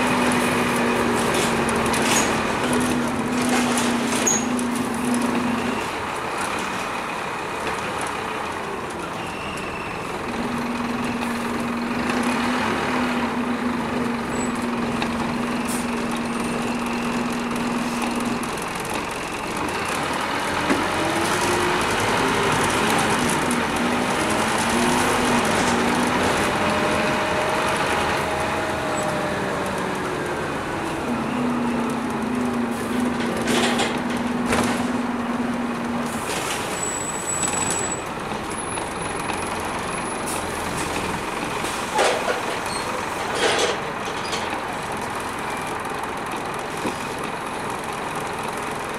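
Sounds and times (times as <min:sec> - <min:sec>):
bus diesel engine drone: 0:00.0 - 0:48.9.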